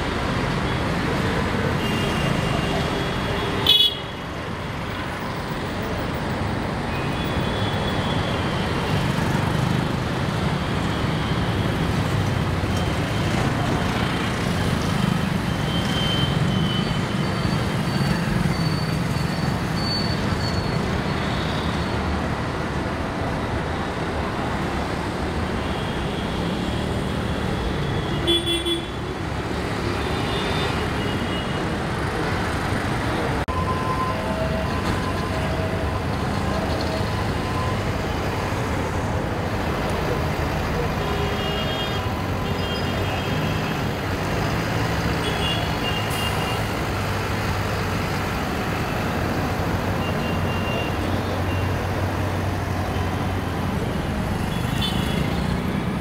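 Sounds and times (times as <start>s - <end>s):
vehicles passing close by: 26.3s - 56.0s.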